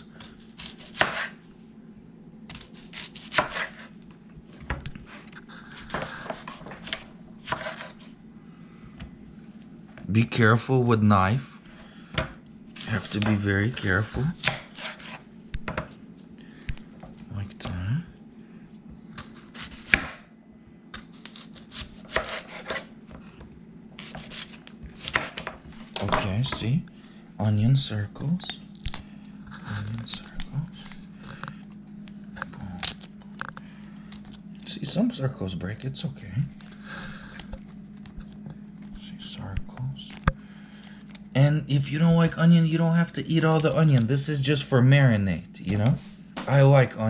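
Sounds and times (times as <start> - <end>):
knife crunching through onion: 0.2 - 1.4, 2.5 - 4.0, 5.1 - 8.2, 14.1 - 15.2, 19.2 - 20.0, 21.0 - 22.9, 24.0 - 26.4, 32.4 - 34.7.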